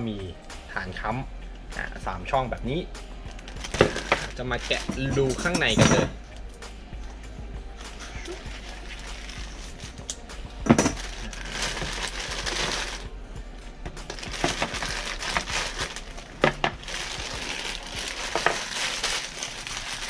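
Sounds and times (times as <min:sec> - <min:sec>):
plastic bag crinkling: 0:03.4 - 0:05.8, 0:08.1 - 0:13.2, 0:14.0 - 0:20.0.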